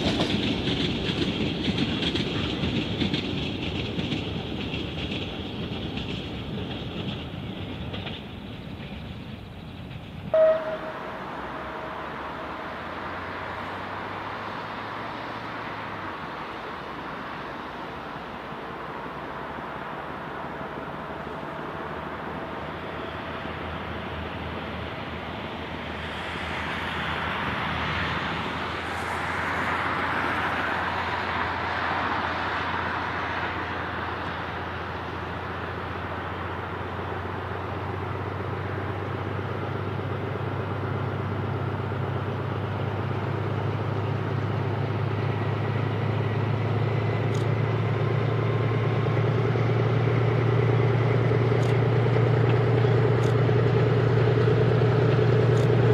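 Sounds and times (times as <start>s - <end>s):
distant diesel locomotive engine: 0.0s - 55.9s
rushing hiss: 24.8s - 33.6s.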